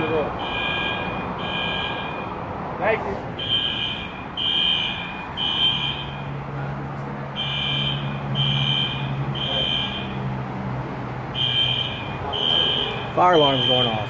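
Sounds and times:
fire alarm tone pulses: 0:00.4 - 0:02.4, 0:03.4 - 0:06.4, 0:07.4 - 0:10.2, 0:11.3 - 0:14.0.

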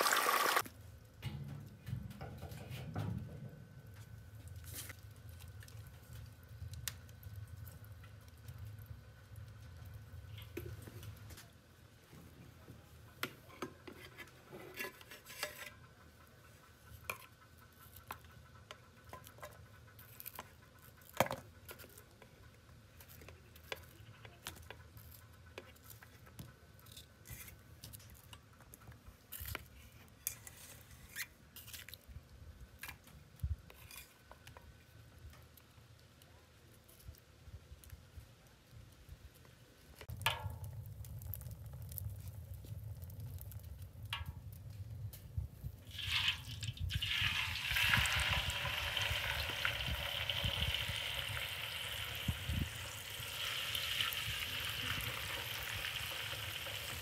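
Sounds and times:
oil pouring into wok: 0:45.8 - 0:57.0.

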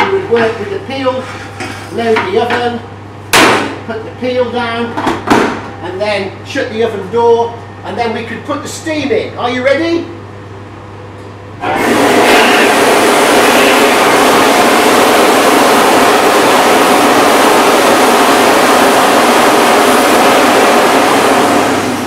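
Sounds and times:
steam hissing: 0:11.6 - 0:22.0.

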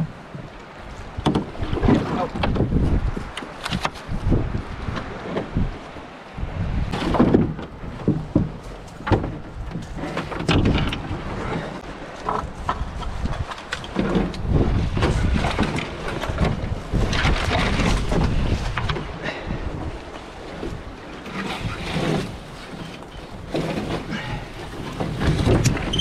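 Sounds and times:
wind buffeting microphone: 0:00.0 - 0:26.0
canoe knocks and thumps: 0:01.2 - 0:04.0, 0:06.9 - 0:19.2, 0:20.5 - 0:26.0.

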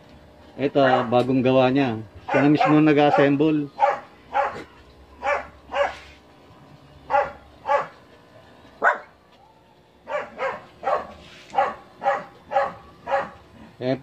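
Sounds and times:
dog barking: 0:00.8 - 0:01.2, 0:02.2 - 0:06.1, 0:07.1 - 0:08.0, 0:08.8 - 0:09.2, 0:10.0 - 0:13.4.

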